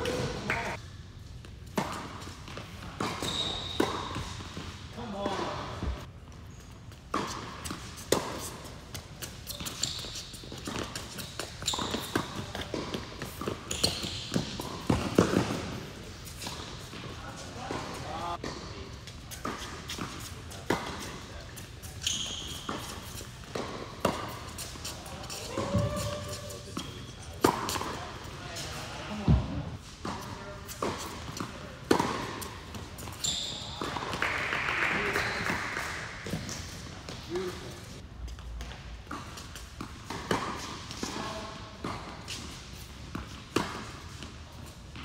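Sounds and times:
shoes squeaking on court: 1.4s - 34.3s
racket striking tennis ball: 7.1s - 17.0s, 22.6s - 28.0s, 30.0s - 33.2s, 39.1s - 44.3s
tennis ball bouncing: 7.1s - 17.1s, 22.6s - 24.9s, 30.0s - 33.2s, 38.6s - 41.2s, 41.8s - 45.0s.

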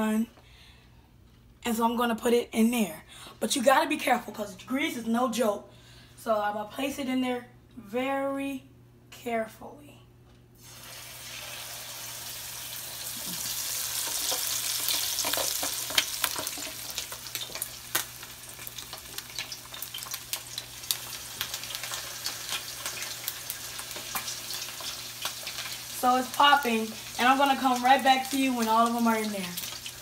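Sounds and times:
chicken wings sizzling in oil: 10.6s - 30.0s
oil popping and crackling: 13.0s - 30.0s.

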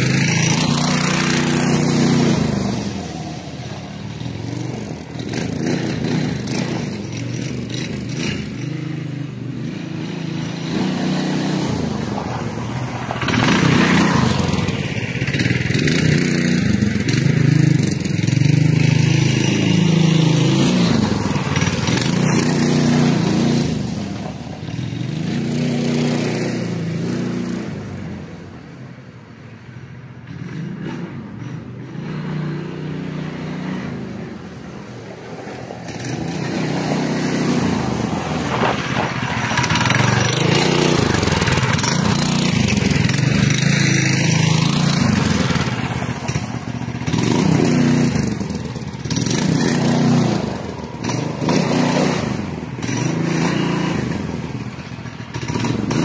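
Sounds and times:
minibike engine revving: 0.0s - 28.5s, 30.2s - 56.0s.

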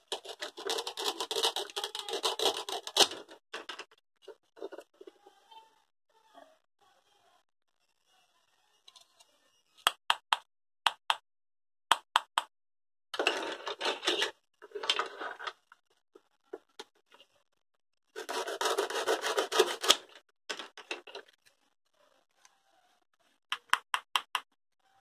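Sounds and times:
plastic toy pieces clacking: 0.0s - 3.9s.

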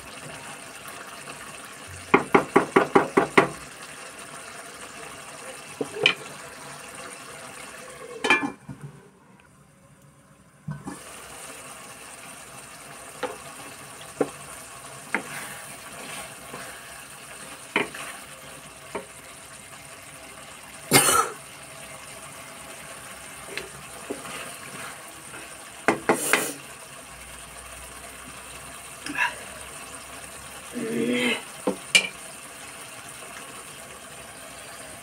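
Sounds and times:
food sizzling in a pan: 0.0s - 9.3s, 10.6s - 35.0s.

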